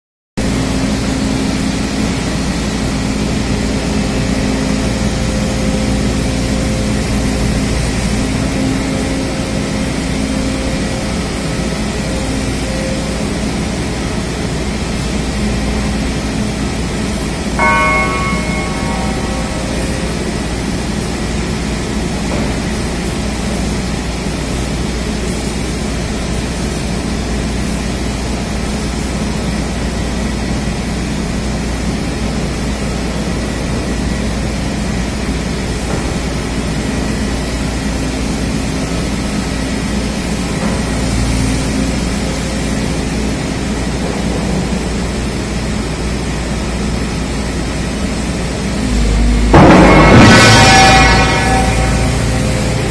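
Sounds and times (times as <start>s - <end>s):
diesel engine humming: 48.1s - 52.9s.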